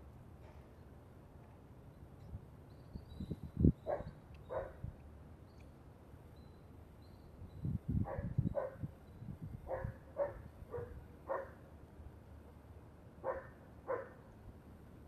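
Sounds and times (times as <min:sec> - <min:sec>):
dog barking: 0:03.9 - 0:04.8, 0:08.0 - 0:08.8, 0:09.7 - 0:11.6, 0:13.2 - 0:14.2.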